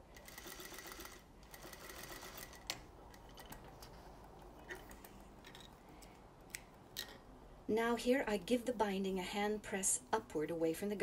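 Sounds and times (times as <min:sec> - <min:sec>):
sewing machine stitching: 0:00.2 - 0:02.6.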